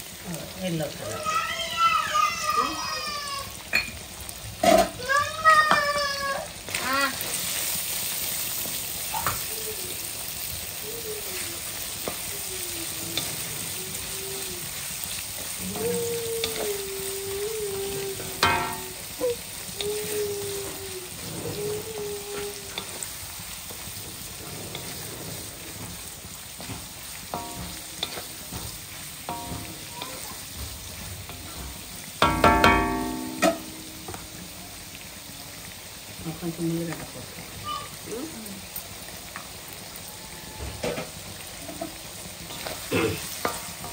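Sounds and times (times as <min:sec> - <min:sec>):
food sizzling in a wok: 0:00.0 - 0:43.9
spatula scraping a pan: 0:11.3 - 0:16.8, 0:19.8 - 0:34.2.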